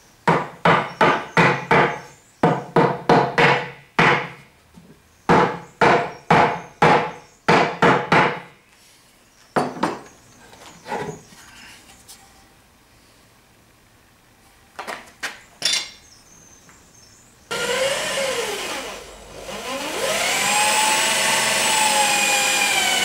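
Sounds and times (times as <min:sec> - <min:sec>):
wooden mallet knocking on wood: 0:00.3 - 0:04.4.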